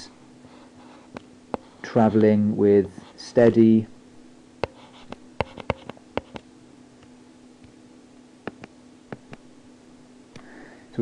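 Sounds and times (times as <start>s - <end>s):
faint steady hum: 0.0s - 11.0s
stylus tapping on tablet screen: 4.6s - 6.4s, 8.4s - 9.4s.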